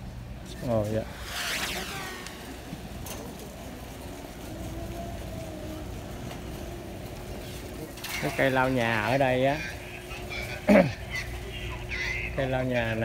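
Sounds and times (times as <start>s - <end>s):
distant shoppers' voices: 0.0s - 13.0s
low hum: 0.0s - 13.0s
shopping carts rolling on concrete: 0.0s - 13.0s
high squeal falling in pitch: 1.2s - 2.8s.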